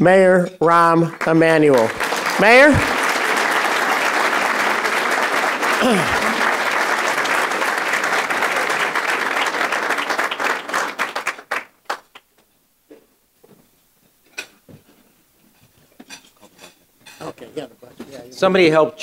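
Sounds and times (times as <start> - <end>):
audience applauding: 1.1 - 12.3.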